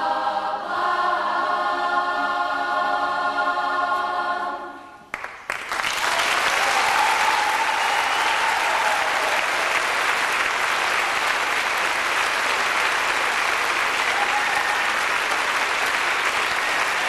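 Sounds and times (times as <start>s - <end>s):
audience applauding: 5.1s - 17.0s.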